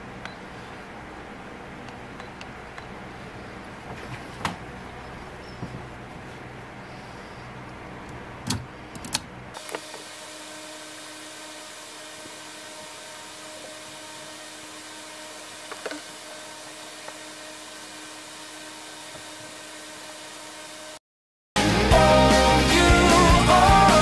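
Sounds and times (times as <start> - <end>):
diffuser hissing: 9.6 - 21.0.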